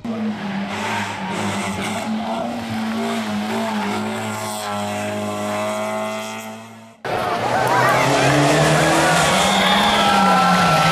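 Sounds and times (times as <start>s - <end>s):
car engine revving high: 0.0s - 10.9s.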